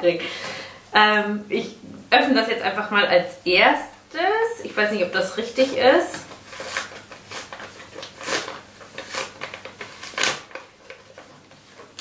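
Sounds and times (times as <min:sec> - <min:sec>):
envelope paper rustling: 0:05.6 - 0:12.0.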